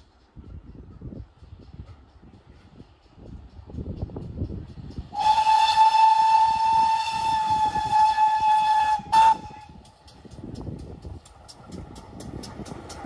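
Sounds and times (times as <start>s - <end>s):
steam locomotive whistle: 5.1s - 9.9s.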